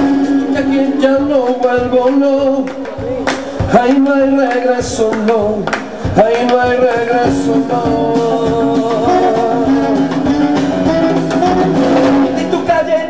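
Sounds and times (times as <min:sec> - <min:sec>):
saxophone melody: 0:00.0 - 0:03.6, 0:07.0 - 0:13.0
acoustic guitar strumming: 0:00.0 - 0:05.4, 0:06.3 - 0:13.0
drums: 0:00.0 - 0:13.0.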